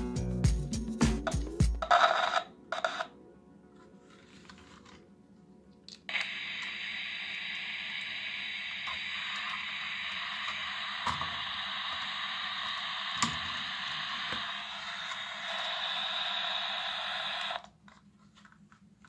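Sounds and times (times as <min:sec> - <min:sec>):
radio static hiss: 0:06.1 - 0:17.7.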